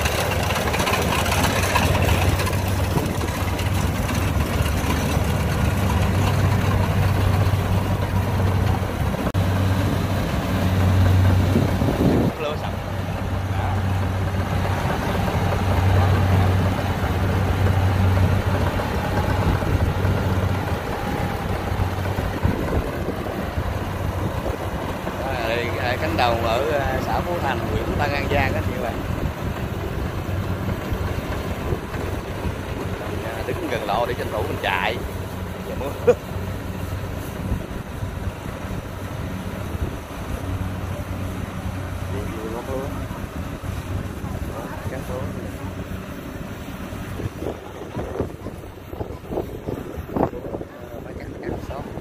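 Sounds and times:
combine harvester diesel engine: 0:00.0 - 0:52.0
wind buffeting microphone: 0:00.0 - 0:52.0.

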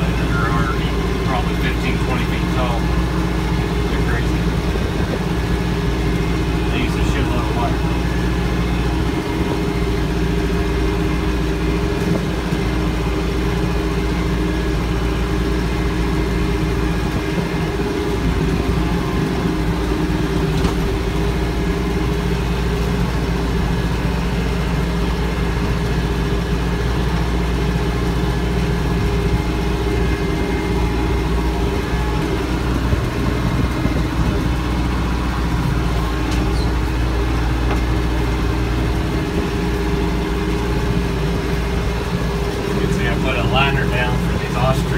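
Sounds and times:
tractor diesel engine running: 0:00.0 - 0:44.9.

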